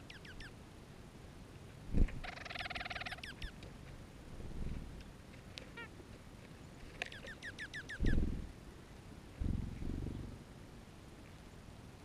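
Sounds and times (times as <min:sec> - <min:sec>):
small songbirds chirping: 0:00.0 - 0:00.7, 0:01.6 - 0:04.2, 0:04.8 - 0:12.0.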